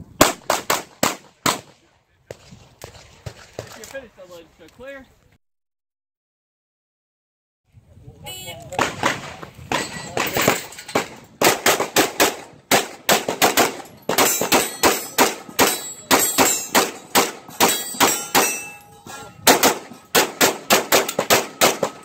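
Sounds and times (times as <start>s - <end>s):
rapid pistol fire: 0.2s - 3.4s, 8.8s - 18.6s, 19.5s - 22.0s
steel targets ringing: 13.8s - 22.0s.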